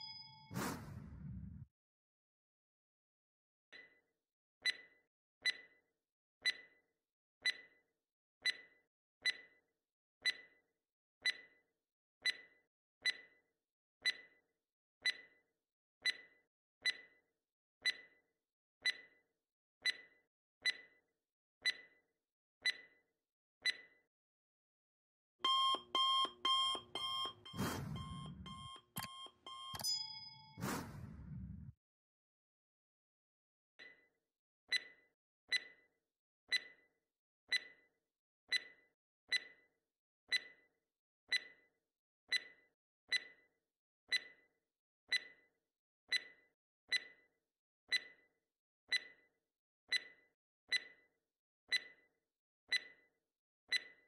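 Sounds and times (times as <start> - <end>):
short chime: 0.0 - 1.0, 29.7 - 31.1
alarm clock beeping: 0.0 - 1.2, 25.4 - 31.6
clock ticking: 25.4 - 31.1.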